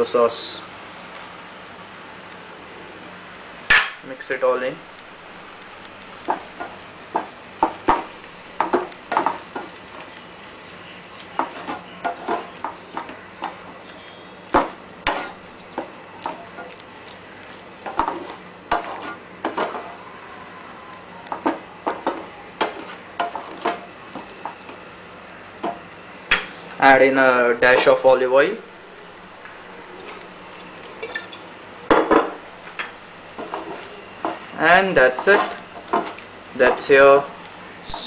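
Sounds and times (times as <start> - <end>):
faint steady hiss: 0.0 - 38.0
utensil scraping frying pan: 6.2 - 16.8, 17.5 - 20.0, 21.3 - 24.7, 33.2 - 37.3.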